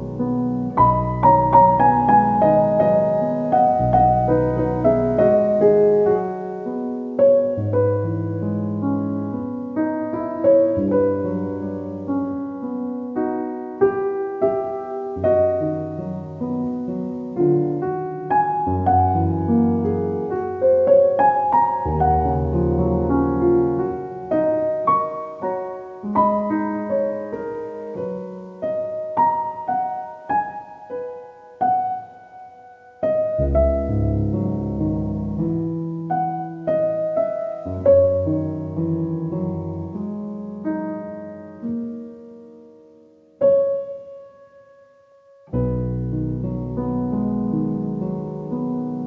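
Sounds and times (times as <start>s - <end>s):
piano music: 0.0s - 49.0s.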